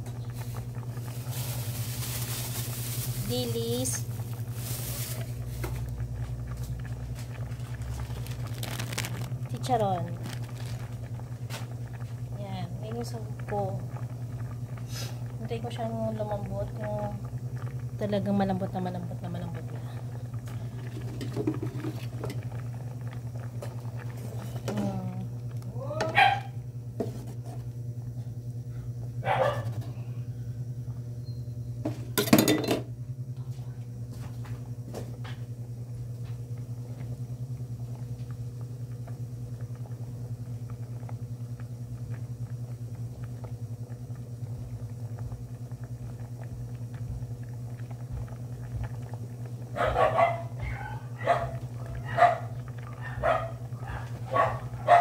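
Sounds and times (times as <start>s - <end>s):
steady low hum: 0.0s - 55.0s
dog barking: 26.0s - 26.6s, 29.2s - 29.8s, 49.7s - 55.0s.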